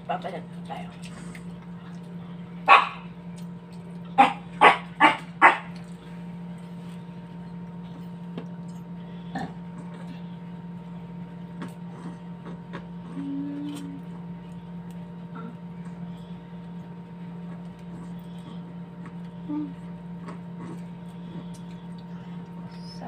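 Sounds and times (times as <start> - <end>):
steady low hum: 0.0 - 23.0
dog barking: 2.6 - 3.1, 4.2 - 5.8.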